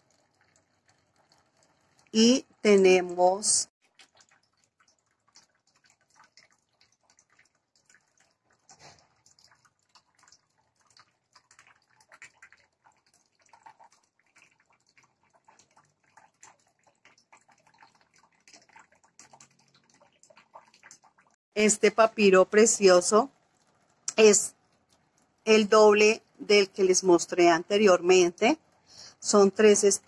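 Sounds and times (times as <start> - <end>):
faint crackles and ticks: 0.0 - 2.6, 3.8 - 21.4, 23.3 - 25.5.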